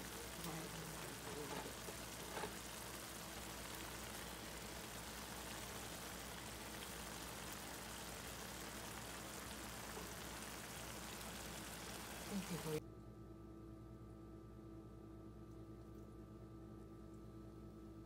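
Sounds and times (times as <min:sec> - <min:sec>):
stew sizzling in a pan: 0:00.0 - 0:12.8.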